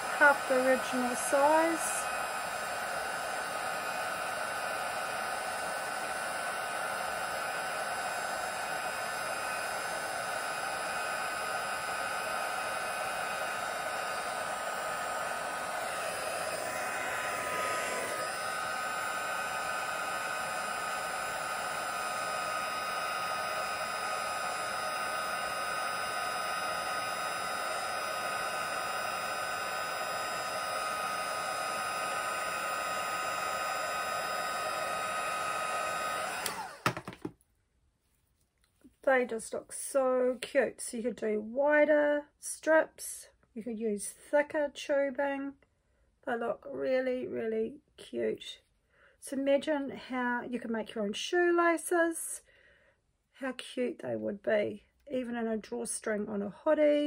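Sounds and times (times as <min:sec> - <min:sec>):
heat gun fan whining: 0:00.0 - 0:37.3.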